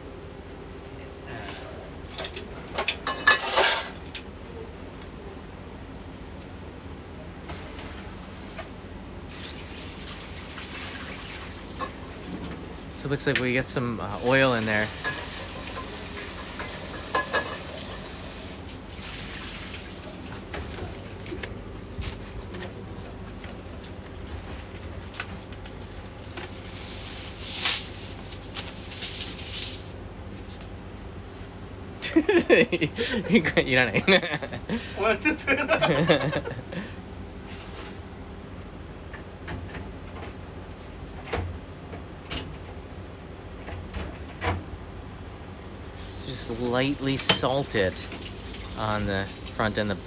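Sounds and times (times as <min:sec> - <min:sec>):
low kitchen hum: 0:00.0 - 0:50.0
aluminium foil crinkling: 0:24.0 - 0:30.0.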